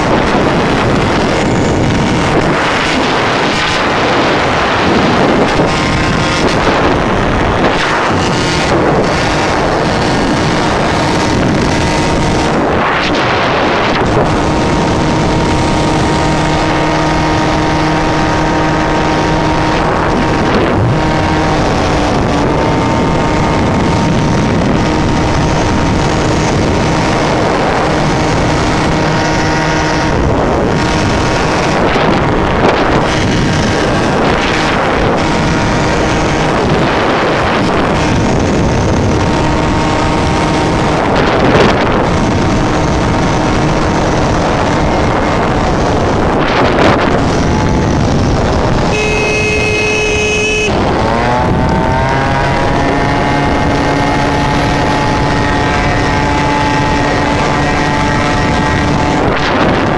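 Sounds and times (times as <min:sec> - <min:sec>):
two-stroke motorbike engine: 0:00.0 - 0:59.9
wind buffeting microphone: 0:00.0 - 0:59.9.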